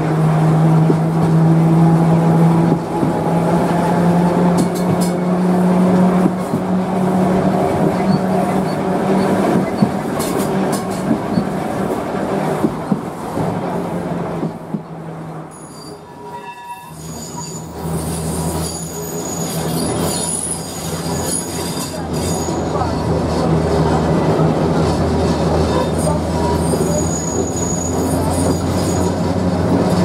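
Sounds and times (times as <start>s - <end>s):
electric tram hum and rattle: 0.0s - 30.0s
high thin wheel squeal: 15.5s - 23.0s, 25.7s - 29.3s.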